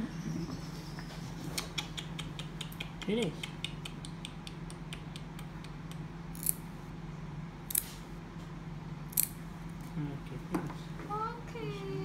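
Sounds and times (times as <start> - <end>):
steady low hum: 0.0 - 12.0
nail clippers snipping claws: 1.6 - 6.6, 7.7 - 7.9, 9.1 - 9.4.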